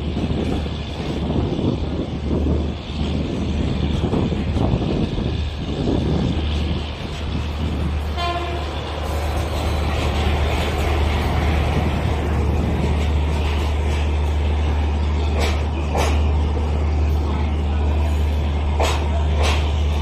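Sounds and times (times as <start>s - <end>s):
train rumbling on rails: 0.0s - 20.0s
train horn toot: 8.1s - 9.2s.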